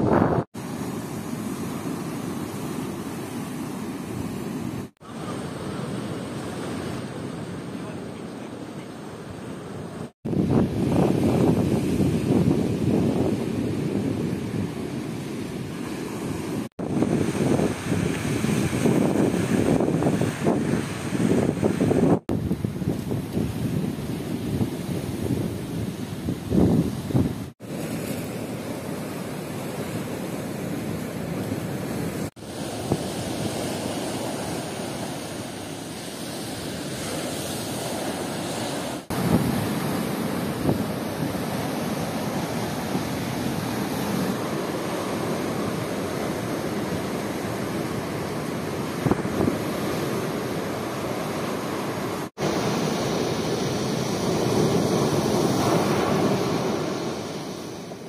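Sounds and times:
wind buffeting microphone: 0:00.0 - 0:00.5, 0:10.2 - 0:27.6, 0:37.9 - 0:50.8
sea waves breaking on shore: 0:00.0 - 0:58.0.

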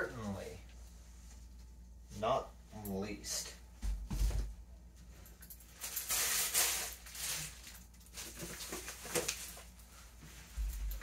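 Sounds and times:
plastic packaging crinkling: 0:05.8 - 0:09.8.

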